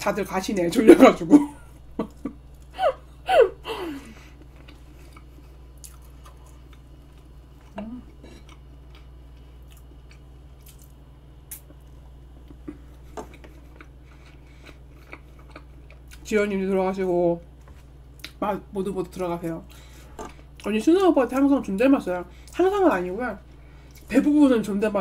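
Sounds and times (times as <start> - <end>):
person humming: 2.8 - 4.2, 7.7 - 8.4
person chewing cake: 4.1 - 16.4, 17.5 - 18.4.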